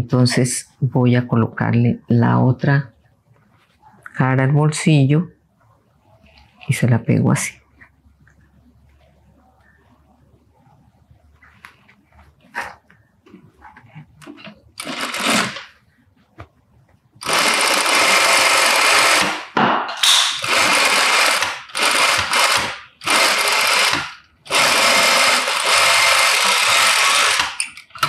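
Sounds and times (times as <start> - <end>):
sewing machine stitching: 14.8 - 15.7, 17.2 - 19.4, 20.4 - 28.0.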